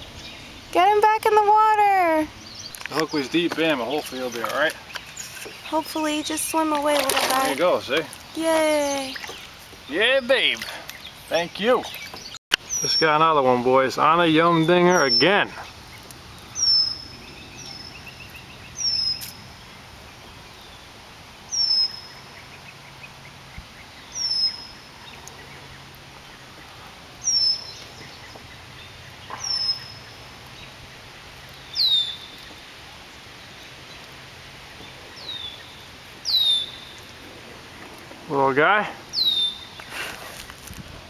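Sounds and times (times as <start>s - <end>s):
bird whistling downward notes: 36.2s - 36.9s, 39.1s - 39.8s.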